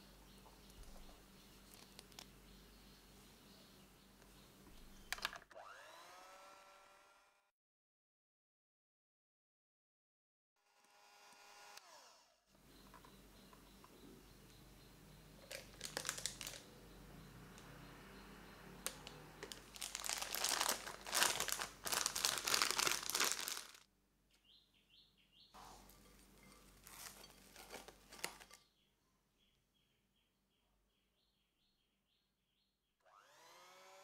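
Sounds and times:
piping bag plastic crinkling: 0:15.4 - 0:16.7, 0:18.8 - 0:23.8, 0:26.1 - 0:28.6
cling film rustling: 0:19.4 - 0:23.8, 0:25.9 - 0:28.6.

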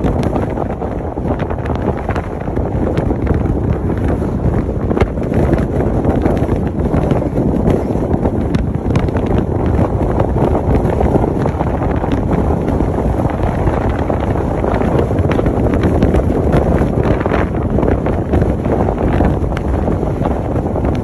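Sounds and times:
microphone pops and crackles: 0:00.0 - 0:21.0
wind buffeting microphone: 0:00.0 - 0:21.0.

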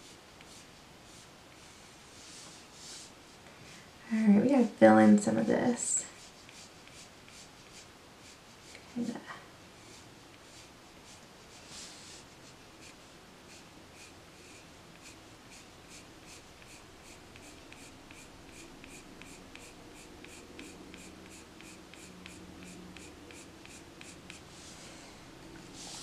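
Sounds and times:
pencil scratching on paper: 0:06.2 - 0:08.6, 0:12.8 - 0:24.5.

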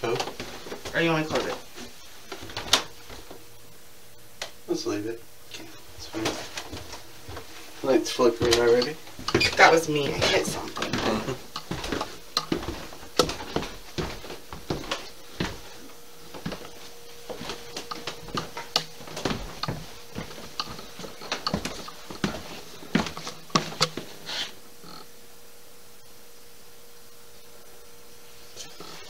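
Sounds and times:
footsteps on a staircase: 0:00.0 - 0:03.4, 0:06.0 - 0:24.4
faint steady hum: 0:00.0 - 0:29.0.

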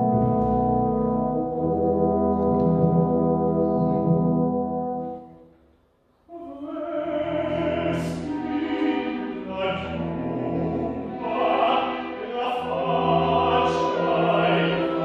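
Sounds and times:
orchestral brass low chord: 0:00.0 - 0:05.4
operatic tenor singing: 0:06.3 - 0:15.0
strings: 0:06.6 - 0:15.0.

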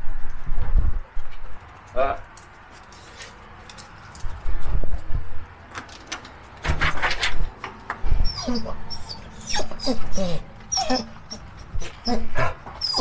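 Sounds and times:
dog whimpering: 0:08.2 - 0:13.0.

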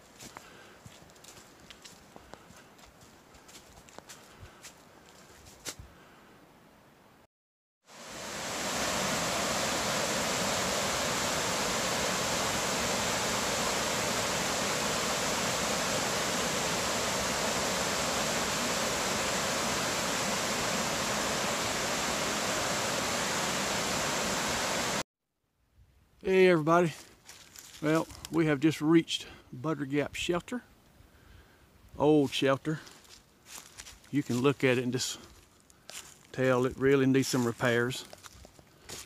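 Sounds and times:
water rushing over rocks: 0:07.9 - 0:25.0.

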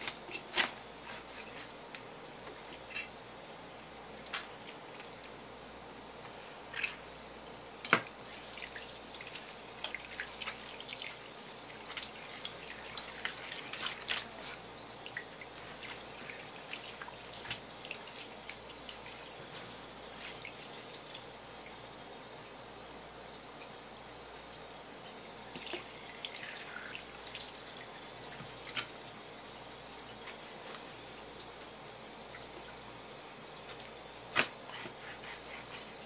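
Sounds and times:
water running from hose: 0:08.2 - 0:21.9, 0:25.4 - 0:36.0.

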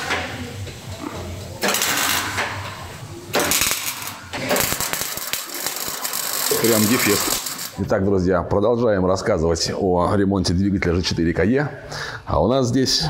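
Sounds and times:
welding arc crackling: 0:00.0 - 0:07.8.

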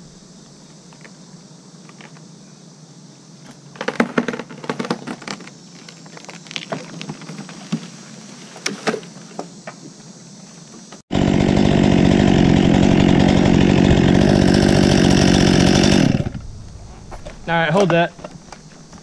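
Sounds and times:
chainsaw idling: 0:11.1 - 0:16.7.

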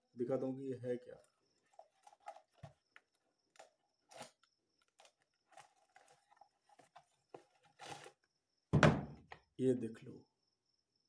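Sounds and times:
cardboard box rustling: 0:05.0 - 0:08.2.

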